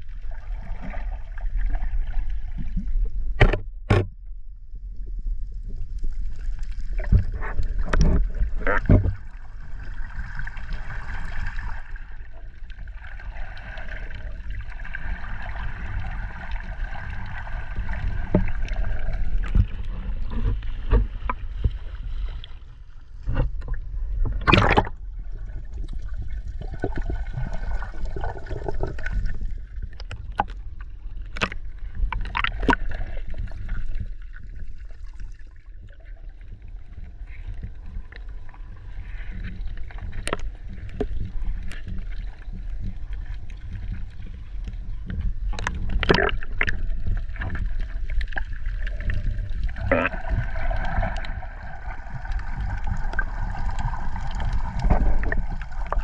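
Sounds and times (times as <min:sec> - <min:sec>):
water sloshing and gurgling: 0:00.0 - 0:56.0
low rumble: 0:36.2 - 0:56.0.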